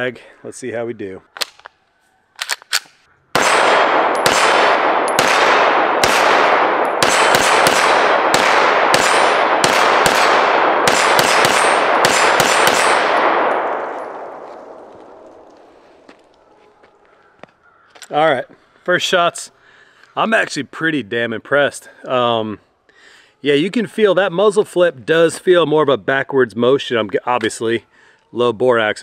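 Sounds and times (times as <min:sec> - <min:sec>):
pistol slide racking clicks: 0:02.4 - 0:03.0
pistol shots echoing: 0:02.4 - 0:15.6.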